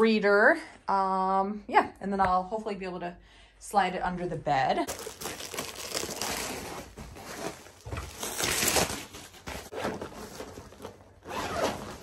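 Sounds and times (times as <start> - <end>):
packaging rustling and crinkling: 4.9 - 12.0.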